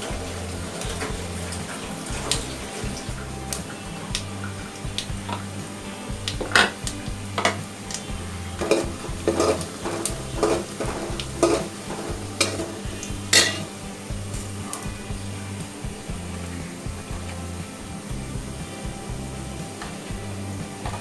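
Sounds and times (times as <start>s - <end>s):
onions sizzling in oil: 0.0s - 21.0s
metal ladle scraping a pot: 8.6s - 13.7s.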